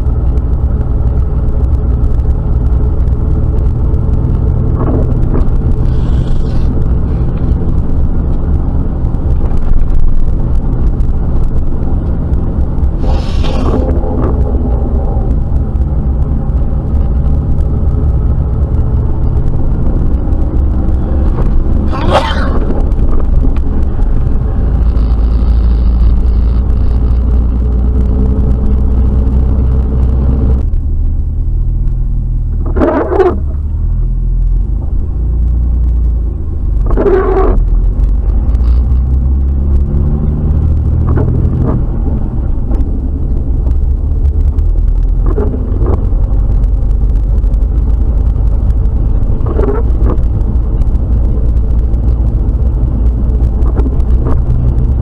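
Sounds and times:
rushing noise: 0.0s - 31.8s
engine and road rumble: 0.0s - 55.0s.

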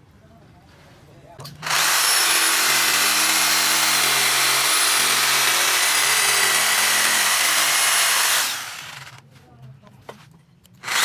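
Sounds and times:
electric jigsaw cutting wood: 1.6s - 9.2s.

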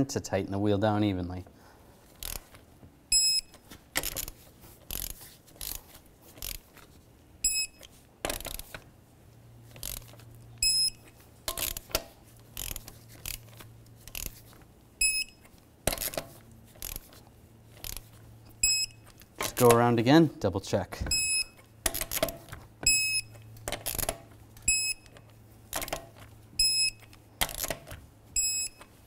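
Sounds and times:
wrench ratchet clicks: 2.2s - 2.5s, 4.9s - 5.8s, 6.4s - 6.7s, 9.8s - 10.1s, 11.5s - 12.0s, 12.6s - 14.4s, 17.8s - 18.1s.

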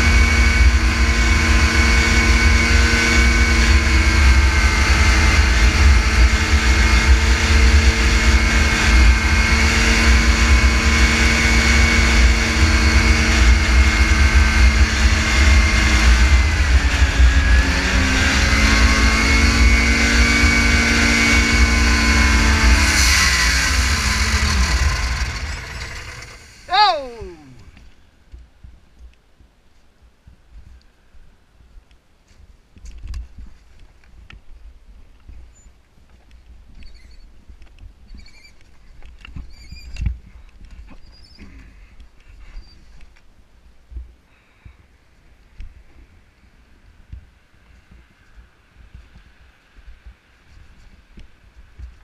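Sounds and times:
snowmobile engine running: 0.0s - 27.7s.

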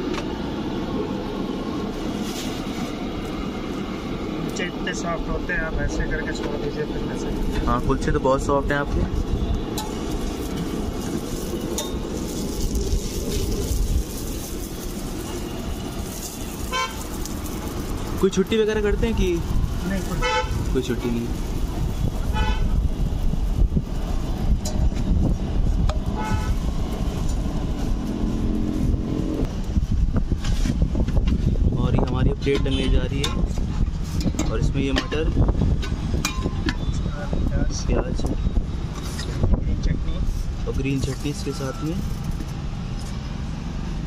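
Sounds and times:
road traffic rumble: 0.0s - 44.0s
car horns: 16.7s - 17.1s, 20.1s - 20.7s, 22.3s - 22.8s, 26.1s - 26.6s, 32.5s - 33.2s.

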